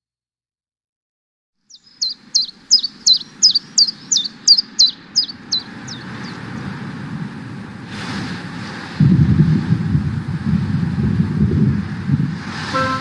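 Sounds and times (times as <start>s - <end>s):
bird chirping rapidly: 1.6s - 6.5s
low rushing ambience: 12.5s - 13.0s.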